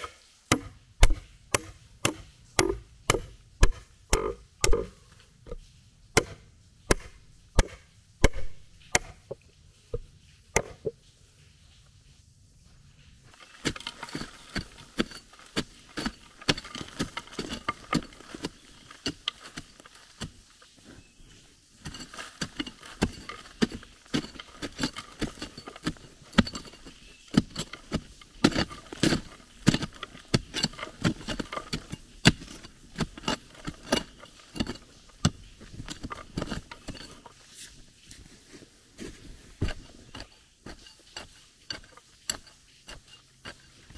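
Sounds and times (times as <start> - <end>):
pickaxe chopping into dirt: 0.0 - 4.9, 6.2 - 9.2, 21.8 - 37.0
hammer striking steel rebar: 0.5 - 4.9.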